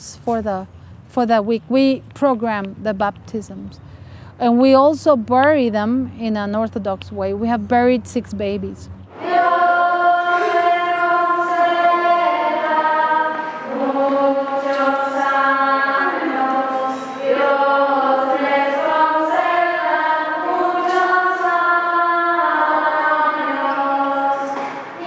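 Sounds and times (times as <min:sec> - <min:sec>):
choir singing a slow hymn: 0:09.1 - 0:25.0.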